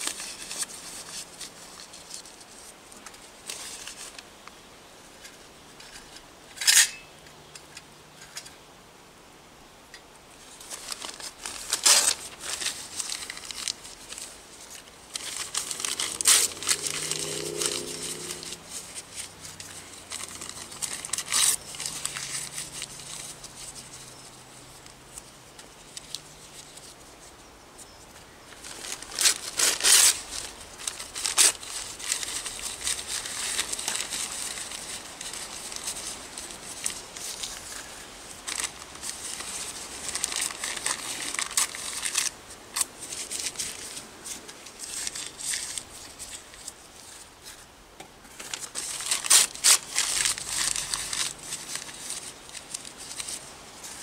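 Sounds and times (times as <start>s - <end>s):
newspaper crinkling rustle: 0.0s - 4.5s, 10.4s - 54.0s.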